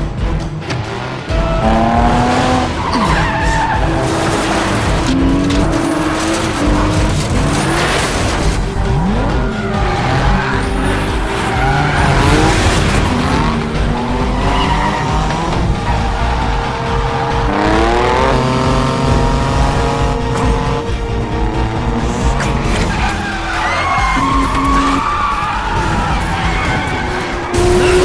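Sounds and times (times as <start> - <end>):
racing car engines revving: 0.0 - 28.0
tyres squealing: 9.0 - 19.4, 21.4 - 28.0.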